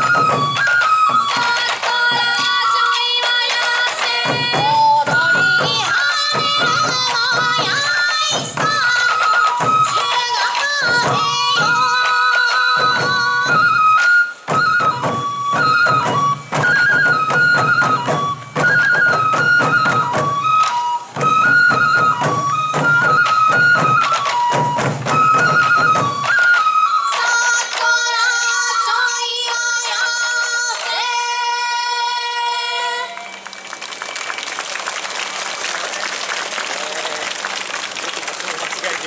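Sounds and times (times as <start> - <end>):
taiko drums beating: 0.0 - 26.9
bamboo flute melody: 0.0 - 39.0.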